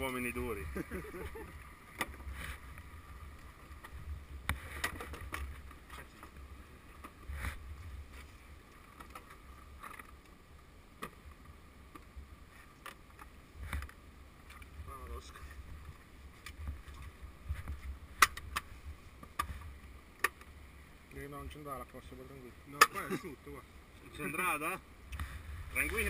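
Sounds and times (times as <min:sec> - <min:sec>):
wind rumble on microphone: 0:14.6 - 0:19.8.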